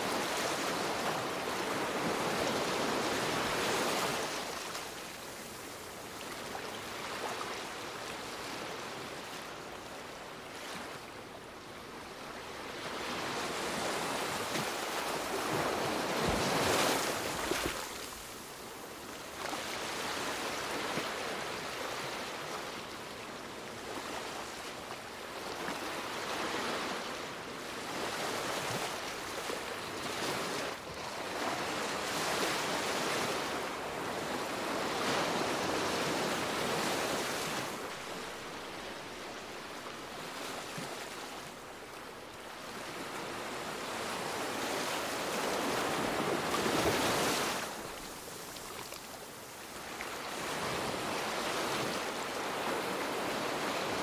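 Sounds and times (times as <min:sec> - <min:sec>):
ocean waves breaking: 0:12.8 - 0:18.2.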